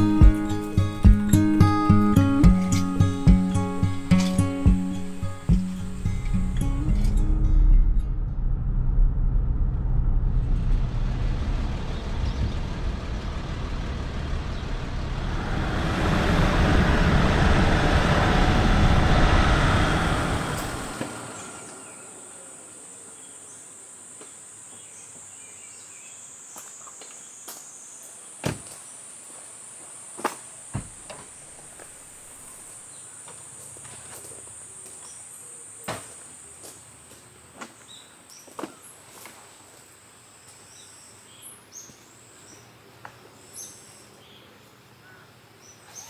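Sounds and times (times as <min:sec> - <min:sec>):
road and wind noise in car: 0:00.0 - 0:23.1
high insect chorus: 0:19.2 - 0:46.0.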